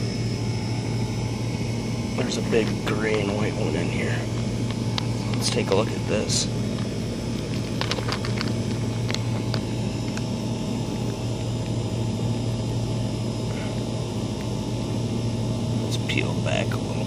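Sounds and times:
low mechanical hum: 0.0s - 17.0s
stones knocking together: 7.5s - 8.6s.

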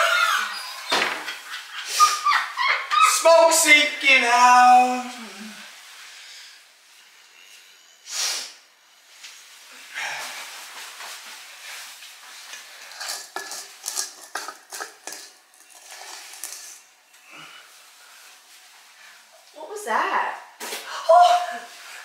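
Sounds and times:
spoon scraping metal bowl: 12.5s - 16.9s.

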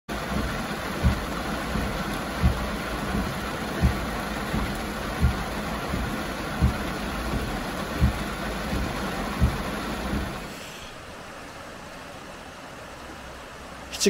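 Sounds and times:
windshield wipers thumping: 0.1s - 10.6s
heavy rain on car roof: 0.1s - 14.0s.

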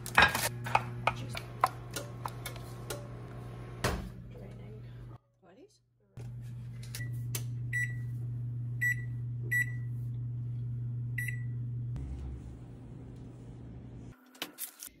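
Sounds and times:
steady low hum: 6.2s - 14.2s
oven control panel beeps: 7.0s - 8.1s, 8.8s - 9.9s, 11.2s - 11.7s.

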